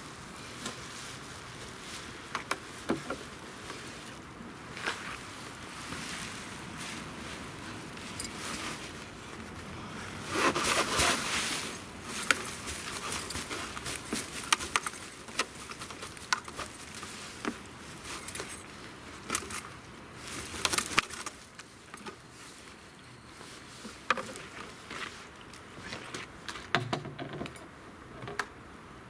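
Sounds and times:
leaves rustling into a bin: 0.0s - 26.7s
fabric bag rustling: 0.5s - 22.8s.

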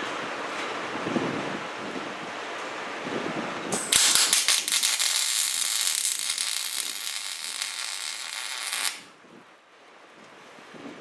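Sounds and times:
welding arc crackling: 3.7s - 9.1s.

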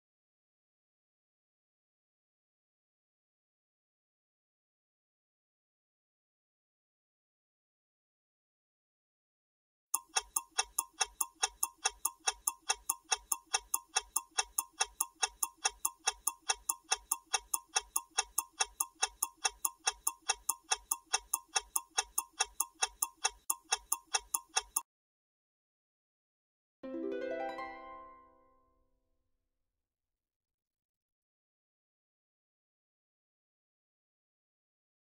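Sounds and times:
rapid countdown timer ticking: 10.0s - 24.8s.

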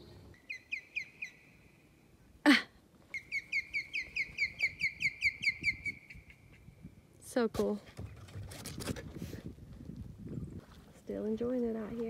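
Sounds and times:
osprey whistled chirps: 0.0s - 1.8s, 3.2s - 6.6s.

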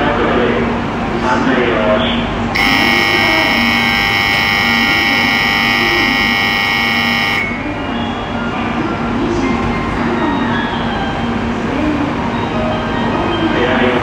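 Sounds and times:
platform departure buzzer: 2.6s - 7.6s
low steady hum: 2.6s - 7.9s.

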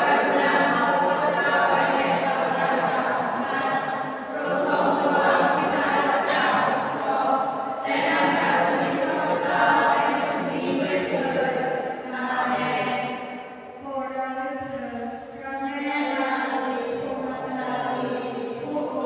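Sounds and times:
choir singing held notes: 0.0s - 13.9s.

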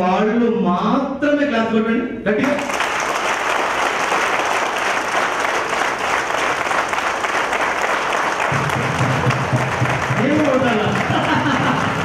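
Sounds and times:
audience applauding: 2.4s - 12.0s.

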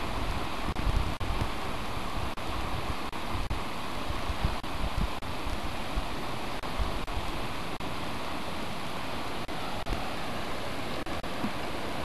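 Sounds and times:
wind bumps on microphone: 0.0s - 7.4s
river rushing over stones: 0.0s - 12.0s.

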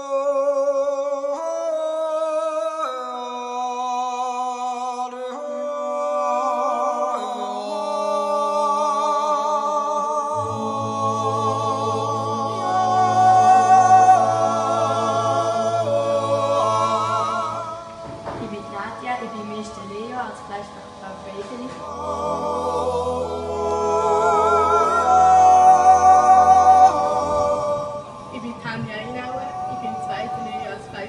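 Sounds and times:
a cappella singing: 0.0s - 31.0s.

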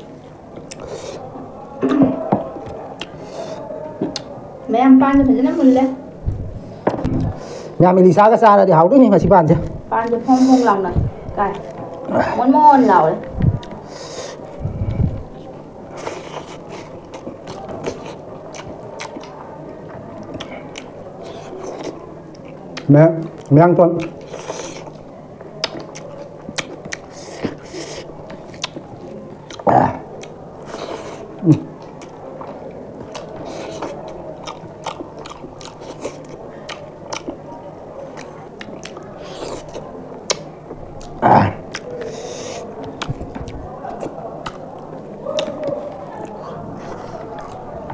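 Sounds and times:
wet chewing mouth clicks: 25.6s - 37.4s, 38.1s - 44.7s.

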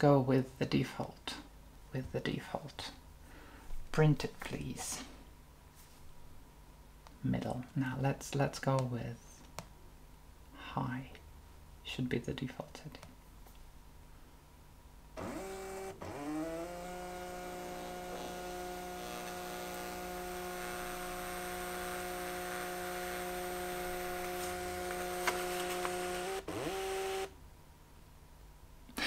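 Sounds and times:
thermal printer motor whine: 15.2s - 27.3s.

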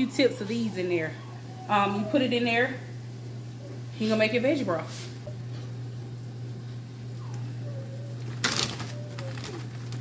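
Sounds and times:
steady low hum: 0.0s - 10.0s
plastic bag rustling: 8.2s - 10.0s.

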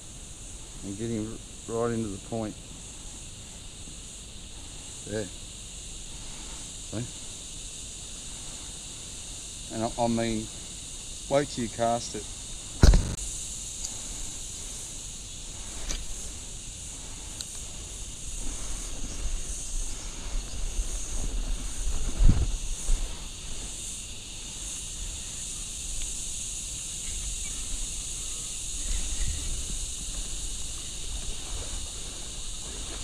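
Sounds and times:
high-pitched insect chorus: 0.0s - 33.0s
thump: 12.8s - 13.2s.

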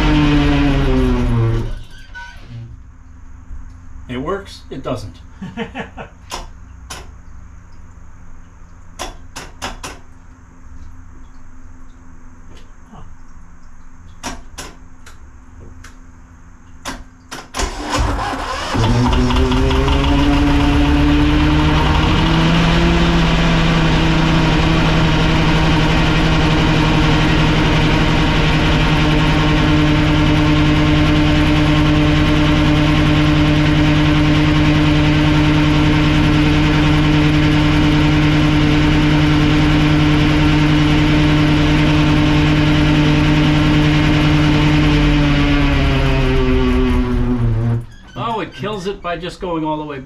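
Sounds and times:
diesel engine starting and running: 0.0s - 2.1s, 17.4s - 49.4s.

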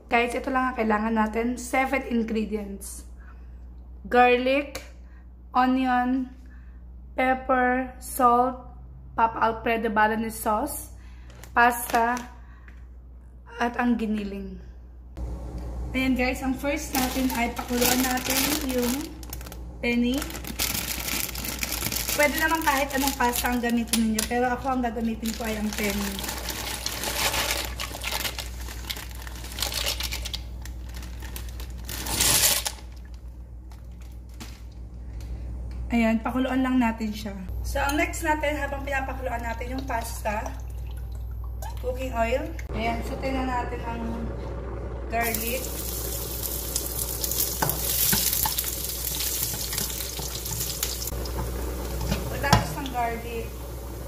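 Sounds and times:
dry pasta rattling: 16.9s - 23.9s, 25.0s - 32.9s
plastic packet crinkling: 16.9s - 34.8s
garlic sizzling in oil: 45.2s - 54.0s.

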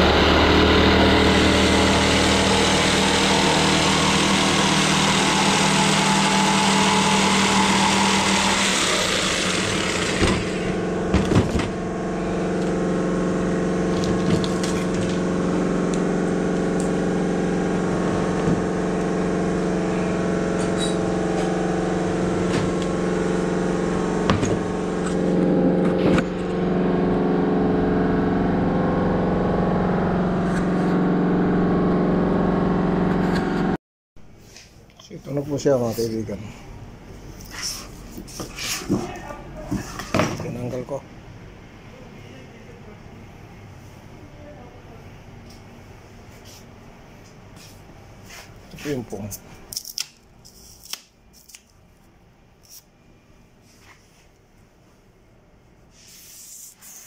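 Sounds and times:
jigsaw cutting wood: 0.0s - 11.8s
low mechanical hum: 0.0s - 57.0s.

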